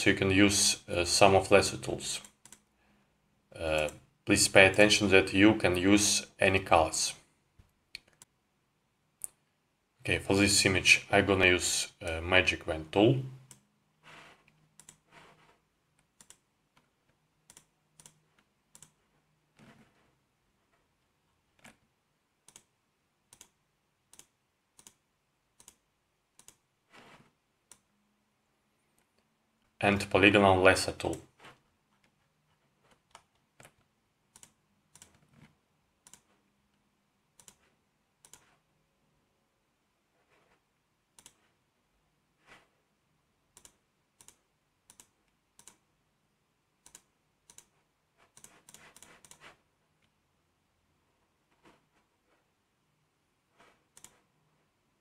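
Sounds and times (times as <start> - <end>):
faint mouse clicks: 2.2 - 2.7, 7.6 - 8.3, 14.4 - 19.0, 22.4 - 22.7, 23.3 - 25.0, 25.6 - 26.6, 27.2 - 27.9, 32.9 - 36.8, 37.4 - 38.6, 41.1 - 41.5, 43.5 - 45.8, 46.8 - 50.2, 53.6 - 54.3.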